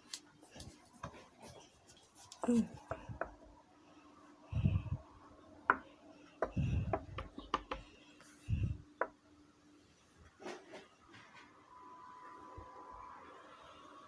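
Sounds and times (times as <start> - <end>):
faint steady hum: 0.0 - 14.0
sharp clicks and taps: 6.4 - 7.9.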